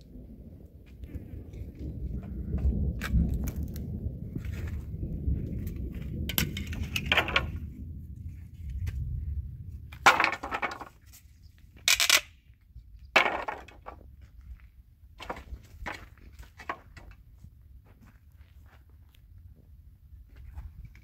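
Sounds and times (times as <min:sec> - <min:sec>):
low rumble: 0:00.0 - 0:10.1
wooden boards knocking and clattering: 0:06.3 - 0:07.6, 0:09.9 - 0:11.2, 0:13.1 - 0:14.1, 0:15.2 - 0:17.2.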